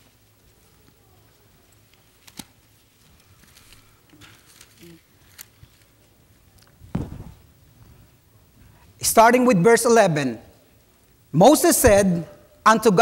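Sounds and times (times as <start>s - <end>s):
pages turning: 1.9s - 6.0s
dull thump: 6.8s - 7.9s, 11.8s - 12.2s.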